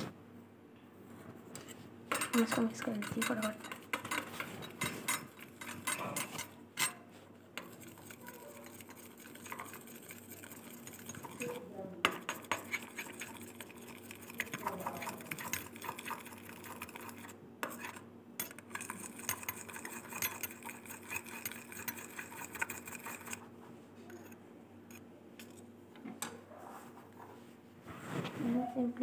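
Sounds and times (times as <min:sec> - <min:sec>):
ladle stirring and scraping: 0:01.5 - 0:25.6
metal clinks and scrapes: 0:02.1 - 0:07.0, 0:07.6 - 0:23.4.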